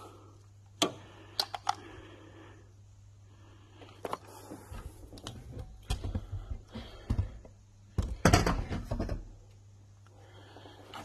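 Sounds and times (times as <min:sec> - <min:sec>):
steady low hum: 0:00.0 - 0:11.0
hands handling plastic connectors: 0:00.8 - 0:01.9.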